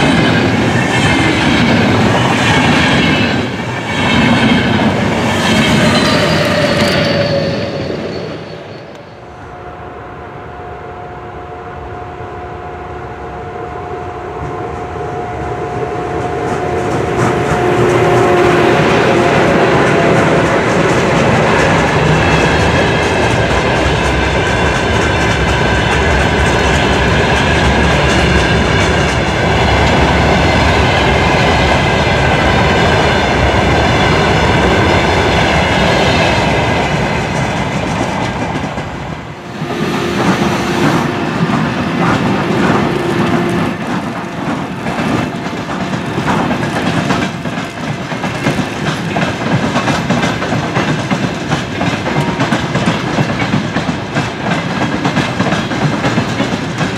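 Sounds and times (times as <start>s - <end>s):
train wheels clattering: 15.7s - 56.9s
train wheels clacking over rail joints: 16.1s - 39.0s, 40.0s - 56.9s.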